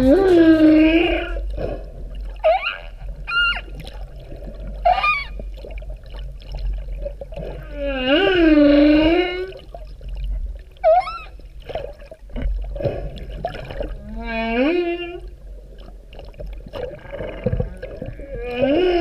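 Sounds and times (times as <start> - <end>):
humpback whale song: 0.0 - 19.0
low underwater rumble: 0.0 - 19.0
clicks and creaks: 16.4 - 19.0.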